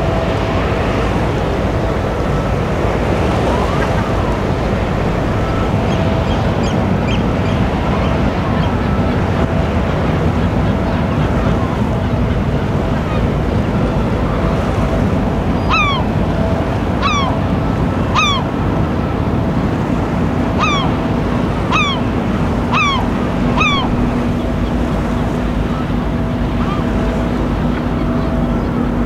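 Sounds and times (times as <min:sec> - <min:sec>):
ship low hum: 0:00.0 - 0:29.0
water: 0:00.0 - 0:29.0
wind: 0:00.0 - 0:29.0.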